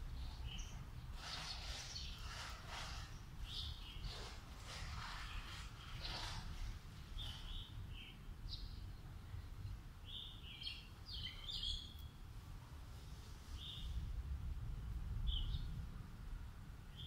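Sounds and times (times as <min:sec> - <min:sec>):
small birds chirping: 0:00.0 - 0:12.3, 0:13.2 - 0:14.0, 0:15.2 - 0:15.8
steady low rumble: 0:12.1 - 0:17.0.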